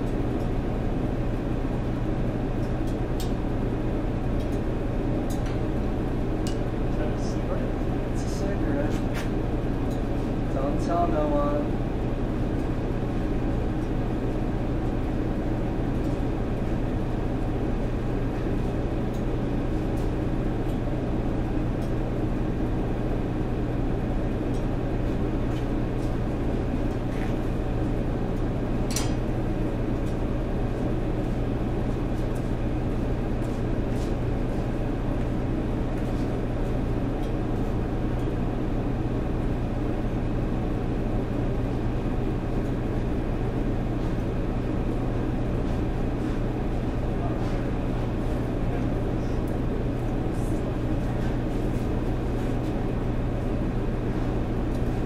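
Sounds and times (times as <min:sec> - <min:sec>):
machine droning: 0:00.0 - 0:55.0.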